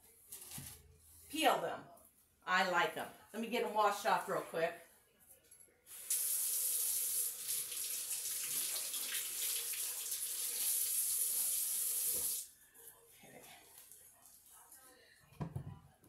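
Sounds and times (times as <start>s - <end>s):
faucet running into sink: 5.9s - 12.4s.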